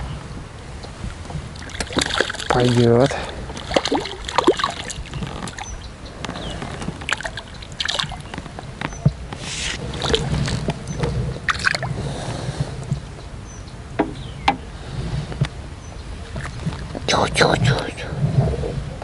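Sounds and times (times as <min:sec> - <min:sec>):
fish splashing in water: 0:01.5 - 0:12.6
fishing tackle clicks and rustles: 0:01.6 - 0:11.9.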